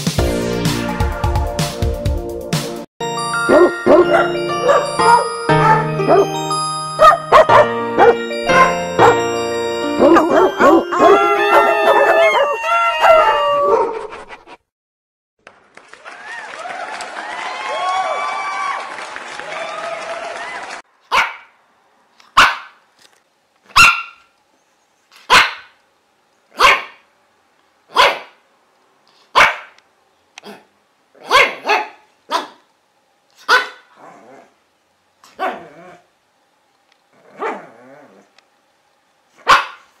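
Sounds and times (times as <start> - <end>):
dog barking: 3.5 - 6.3, 7.0 - 9.2, 10.0 - 12.4, 21.1 - 21.6, 22.3 - 22.8, 23.7 - 24.3, 25.2 - 25.8, 26.6 - 27.0, 27.9 - 28.4, 29.3 - 29.8, 30.4 - 32.7, 33.4 - 33.9, 35.3 - 35.7, 37.4 - 37.7, 39.4 - 39.9.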